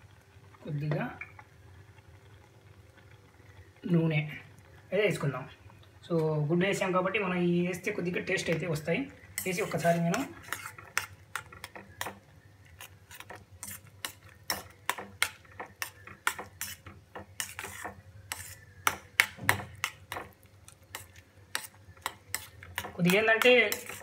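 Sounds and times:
metal spoon scraping a pot: 9.4 - 24.0.

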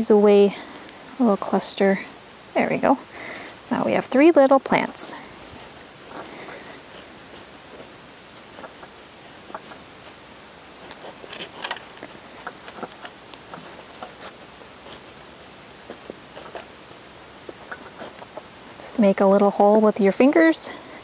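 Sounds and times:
soft rustles in soil: 0.0 - 21.0
steady low hiss: 0.0 - 21.0
small scratching clicks: 6.0 - 10.2, 10.8 - 15.1, 15.8 - 19.5.

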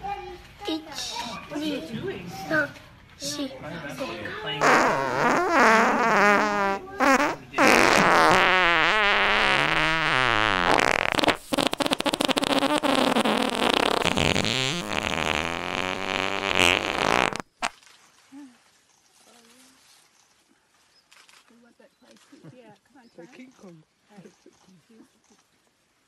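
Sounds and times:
buzzy fart-like noises: 4.6 - 17.7.

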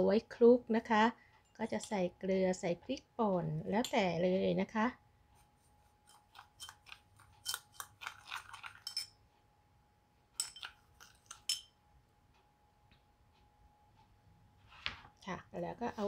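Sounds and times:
spoon scraping glass bowl: 6.0 - 9.2, 10.4 - 11.7.

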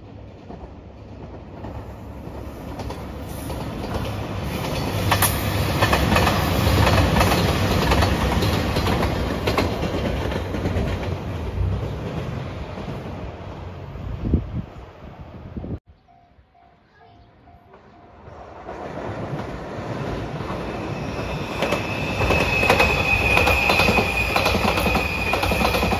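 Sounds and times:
diesel train passing: 0.0 - 25.9
wheels clacking over rails: 0.4 - 13.1.

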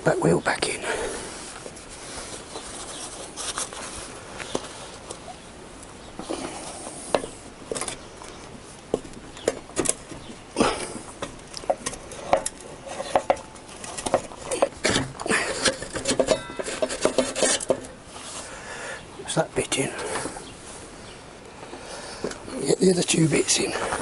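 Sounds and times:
metallic clinks and knocks: 15.5 - 18.0.

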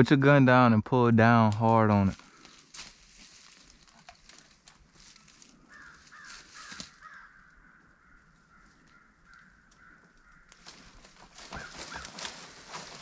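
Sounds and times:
rustling and crackling brush: 1.5 - 7.4, 8.5 - 13.0
raspy animal calls: 5.2 - 13.0.

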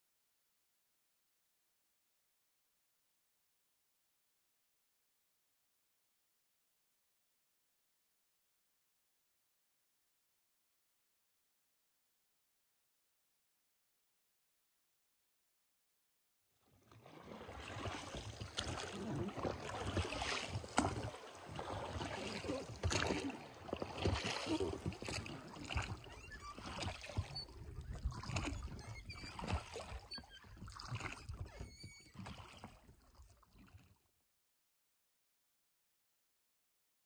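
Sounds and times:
water splashing around a raft: 16.7 - 34.2.

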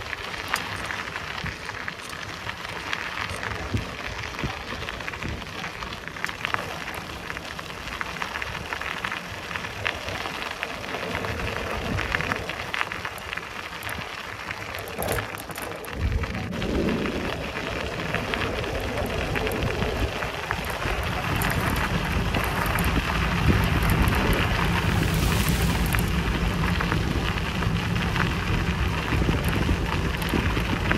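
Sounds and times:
bicycle tyres on rough path: 0.0 - 30.9
wind on microphone: 14.9 - 30.9.

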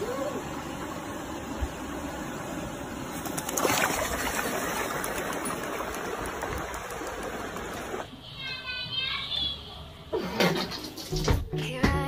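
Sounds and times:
stream water over rocks: 0.0 - 8.1.

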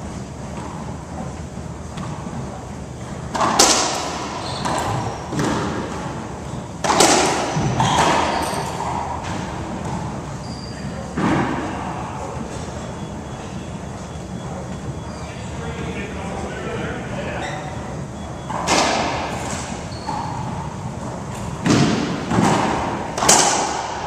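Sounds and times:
racquets striking ball: 3.2 - 10.2, 18.5 - 24.0
ball hitting court walls: 3.3 - 6.2, 6.8 - 10.2, 11.1 - 11.8, 18.5 - 20.5, 21.5 - 24.0.

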